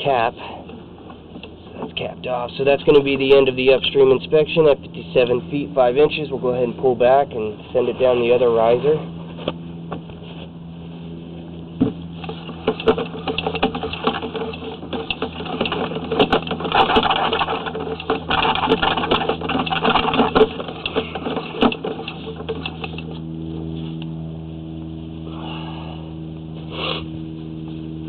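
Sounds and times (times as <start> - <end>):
steady hum: 0.0 - 28.0
cable clattering in drain pipe: 12.2 - 23.2.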